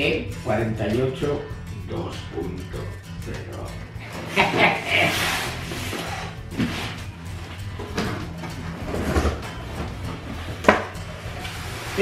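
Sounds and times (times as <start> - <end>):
cardboard scraping and rubbing: 4.3 - 7.2, 8.0 - 12.0.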